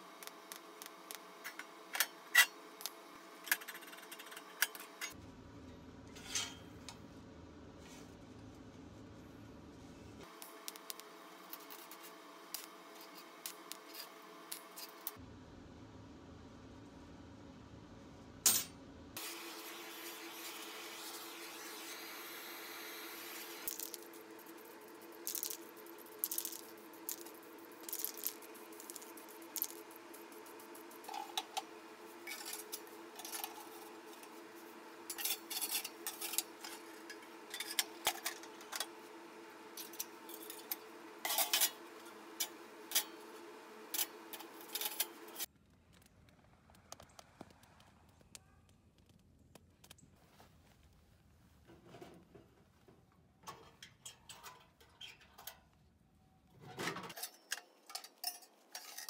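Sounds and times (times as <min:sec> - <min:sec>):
steady low hum: 0:00.0 - 0:54.1
metal parts clinking: 0:25.2 - 0:25.6, 0:26.2 - 0:29.9.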